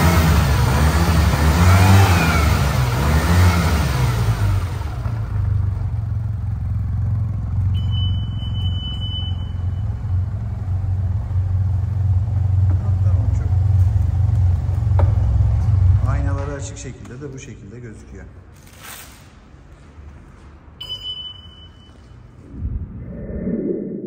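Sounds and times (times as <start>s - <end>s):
scooter engine low hum: 0.0s - 16.2s, 22.2s - 24.0s
rushing noise: 22.4s - 24.0s.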